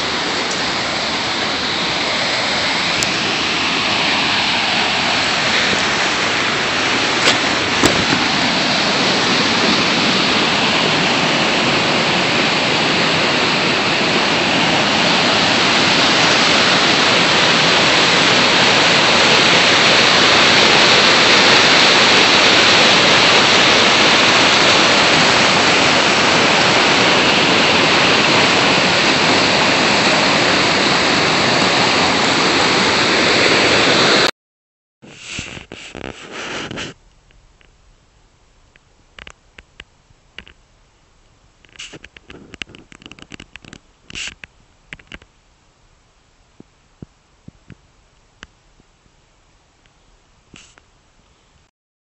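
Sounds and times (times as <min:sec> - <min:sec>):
waterfall rushing: 0:00.0 - 0:34.3.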